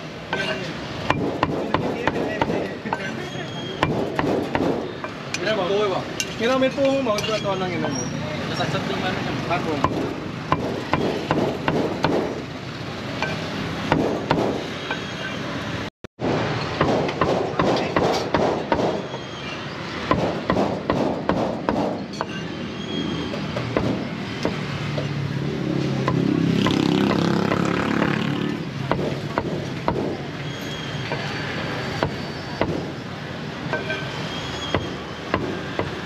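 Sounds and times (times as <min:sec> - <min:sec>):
cleaver chopping on wooden block: 0:09.8 - 0:12.4, 0:28.9 - 0:30.2, 0:34.8 - 0:36.0.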